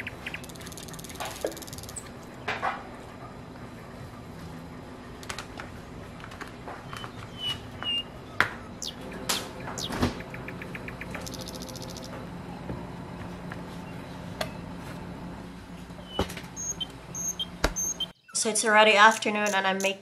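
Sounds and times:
rattle of ticks: 0.0 - 2.1, 9.6 - 12.2, 18.9 - 20.0.

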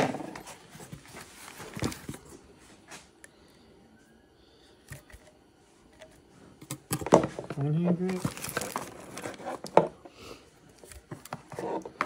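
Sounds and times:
packaging rustling: 8.0 - 9.8.

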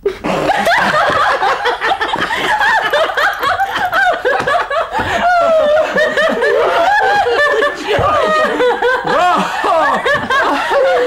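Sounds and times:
people laughing loudly: 0.3 - 11.0.

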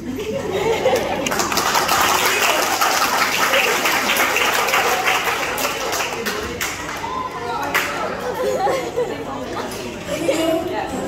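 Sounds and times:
voices in crowd: 0.0 - 11.0
audience clapping: 0.9 - 8.0.

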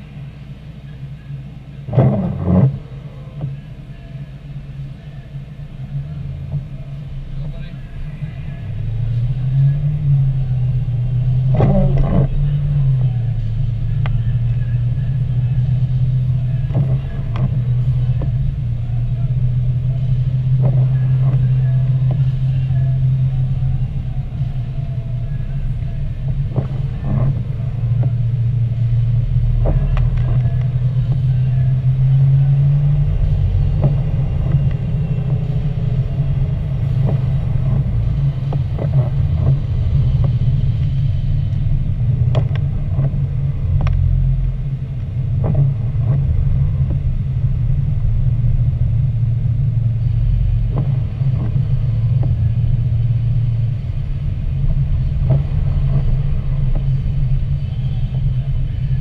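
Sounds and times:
car engine and tyre rumble: 0.0 - 59.0
light ticks: 36.8 - 44.1.

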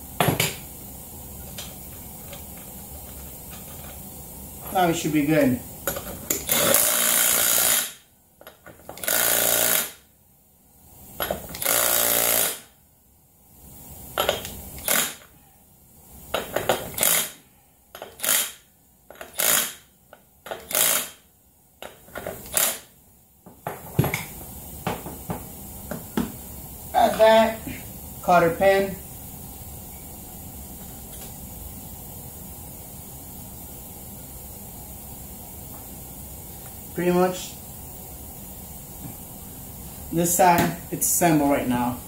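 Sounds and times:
impact wrench hammering: 5.9 - 8.0, 8.9 - 10.0, 18.0 - 19.8, 20.5 - 21.2, 21.8 - 22.9.

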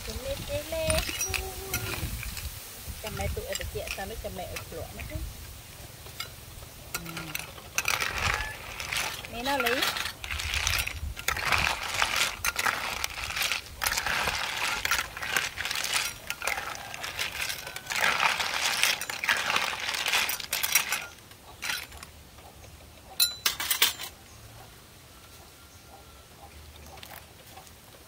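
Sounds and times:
snail shells clattering in a pan: 0.0 - 5.3, 6.0 - 22.1
metal spoon stirring: 0.1 - 5.2, 6.1 - 22.1, 23.2 - 24.1.

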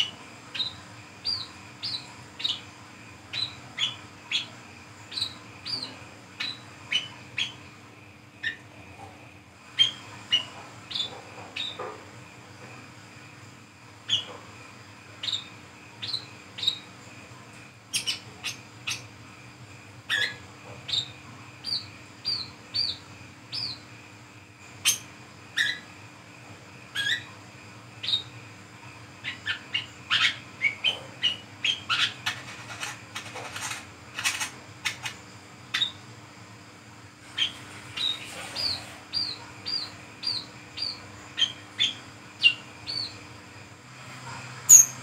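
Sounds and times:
bird chirping and twittering: 0.0 - 7.7, 8.4 - 8.6, 9.8 - 11.9, 14.1 - 14.4, 15.2 - 17.0, 17.9 - 19.1, 20.1 - 23.8, 24.8 - 25.9, 26.9 - 27.4, 28.0 - 28.3, 29.2 - 36.1, 37.3 - 43.2, 44.7 - 45.0.

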